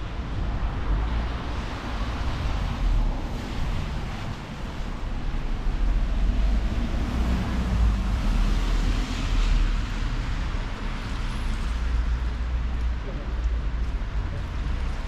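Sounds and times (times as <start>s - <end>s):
outdoor traffic noise: 0.0s - 15.0s.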